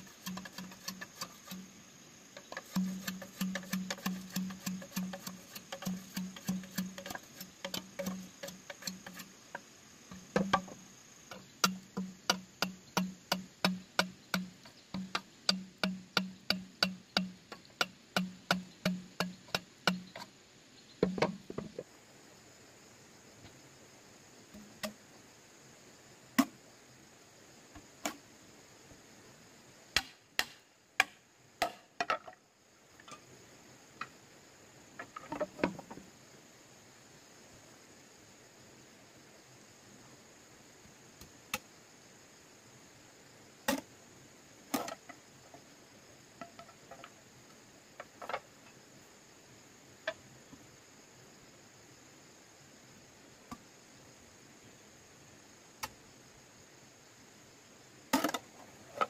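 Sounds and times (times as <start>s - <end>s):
hand tool knocking on bamboo: 2.4s - 9.3s, 10.1s - 20.2s, 21.0s - 21.8s.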